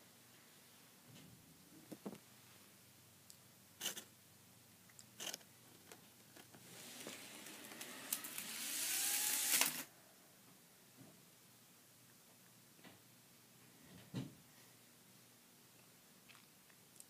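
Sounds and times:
model train motor whining: 0:06.7 - 0:09.9.

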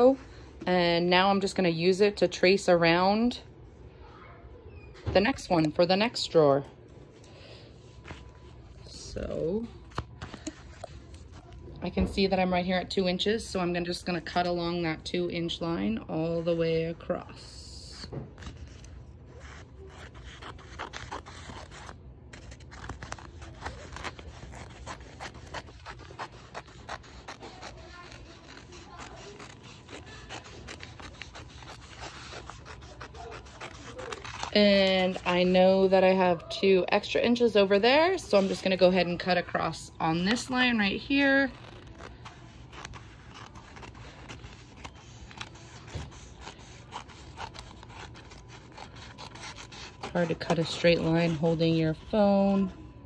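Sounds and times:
scissors cutting paper: 0:17.8 - 0:35.8, 0:40.2 - 0:52.7.

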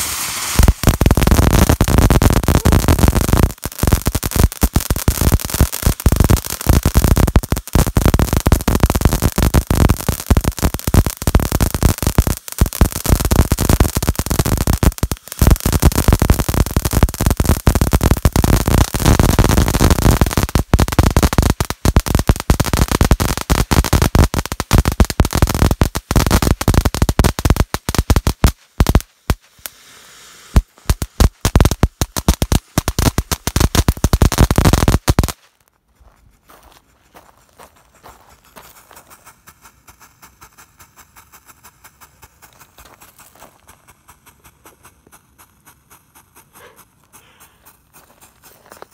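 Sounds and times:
firework fountain crackling: 0:00.0 - 0:35.6.

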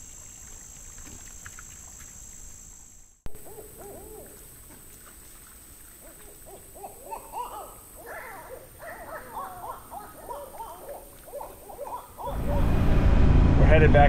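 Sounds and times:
owls hooting: 0:03.3 - 0:04.4, 0:06.3 - 0:12.6.

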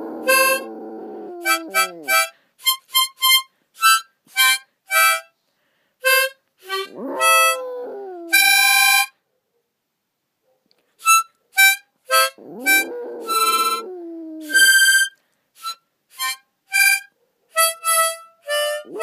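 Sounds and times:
dog howling: 0:00.0 - 0:02.3, 0:06.8 - 0:08.6, 0:12.3 - 0:14.8
harmonica playing: 0:01.4 - 0:05.3, 0:06.0 - 0:07.6, 0:14.5 - 0:19.0.

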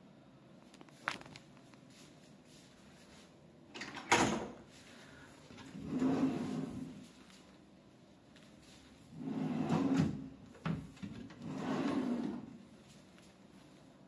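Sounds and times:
wooden drawer sliding open: 0:09.3 - 0:12.5.

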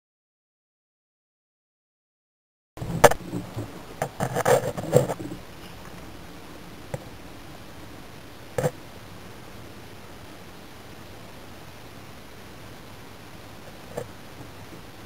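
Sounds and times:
scraping and knocking: 0:02.8 - 0:05.8
steady hiss: 0:02.8 - 0:15.0.

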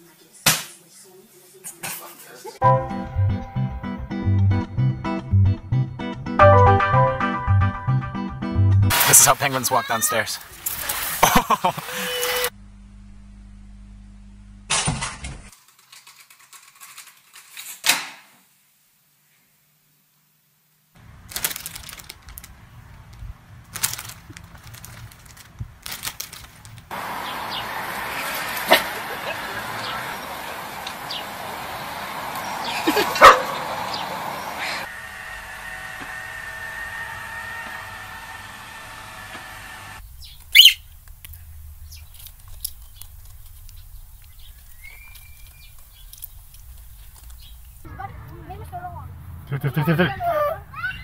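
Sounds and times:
outdoor noise: 0:00.0 - 0:51.0
chip bags crinkling: 0:21.0 - 0:26.9, 0:41.0 - 0:47.8
robot vacuum motor hum: 0:34.6 - 0:40.0
parrot chirps: 0:40.2 - 0:40.9
parrot squawk: 0:40.5 - 0:40.8
parrot whistle: 0:40.5 - 0:40.9.

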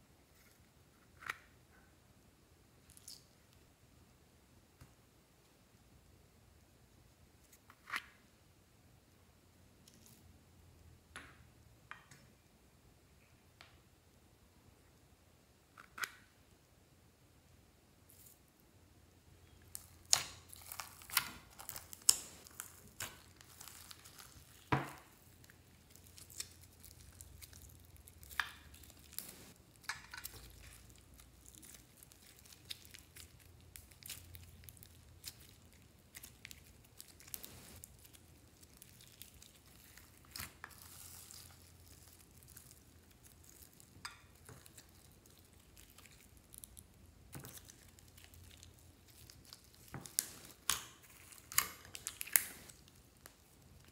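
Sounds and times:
slime squishing: 0:19.5 - 0:53.9
slime popping and crackling: 0:19.6 - 0:53.9.

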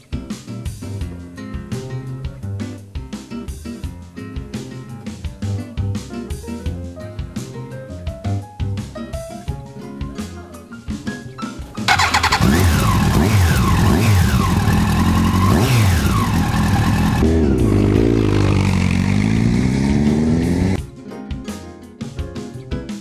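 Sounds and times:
motorcycle engine accelerating: 0:11.9 - 0:20.8.

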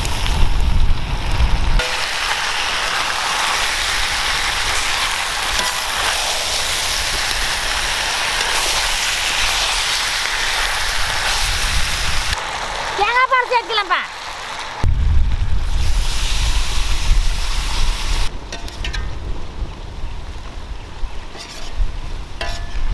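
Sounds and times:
food sizzling in a pan: 0:00.0 - 0:18.3.

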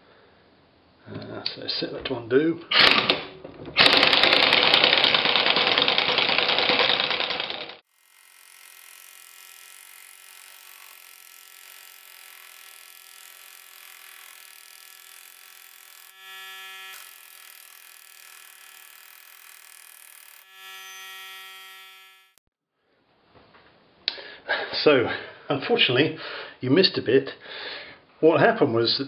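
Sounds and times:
pneumatic air wrench running: 0:03.8 - 0:22.3.

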